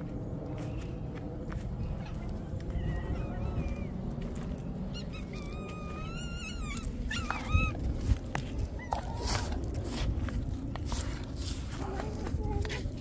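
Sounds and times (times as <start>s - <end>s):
cats meowing: 4.8s - 9.6s.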